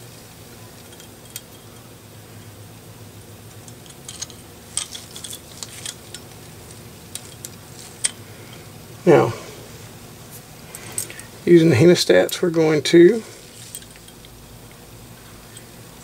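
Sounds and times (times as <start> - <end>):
small metal parts clicking: 0.8 - 2.5, 3.5 - 8.7, 13.5 - 14.4.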